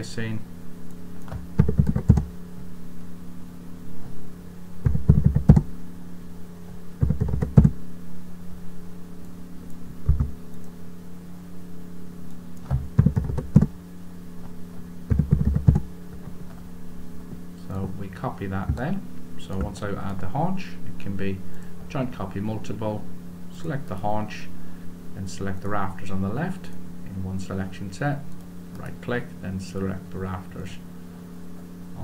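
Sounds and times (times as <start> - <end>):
steady low hum: 0.0 - 32.0
computer keyboard typing: 1.6 - 2.3, 4.8 - 5.7, 7.0 - 7.7, 10.1 - 10.3, 12.7 - 13.7, 15.1 - 15.9.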